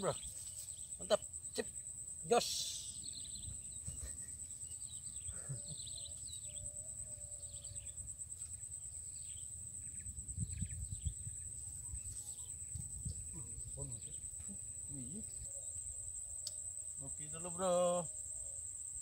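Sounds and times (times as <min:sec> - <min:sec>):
high-pitched insect drone: 0:00.0 - 0:19.0
wind rumble on microphone: 0:09.8 - 0:15.6.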